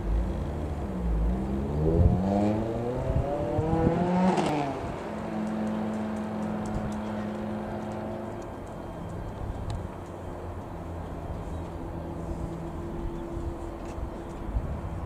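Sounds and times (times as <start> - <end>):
propeller plane engine drone: 0.0 - 15.0
vehicle engine accelerating past: 0.1 - 8.4.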